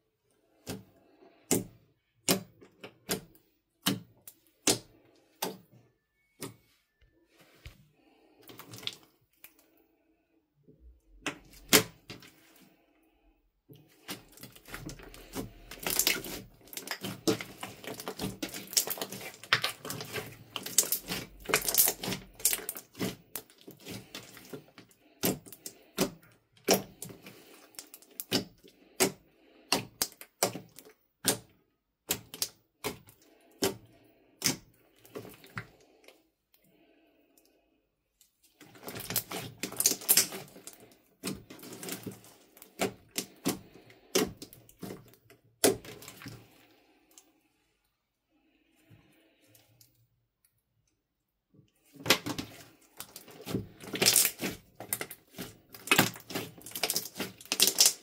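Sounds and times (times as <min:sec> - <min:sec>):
slime squelching: 0:00.3 - 0:09.8, 0:10.8 - 0:50.1, 0:51.7 - 0:58.0
slime crackling and popping: 0:14.0 - 0:29.1, 0:38.6 - 0:46.4, 0:52.1 - 0:58.0.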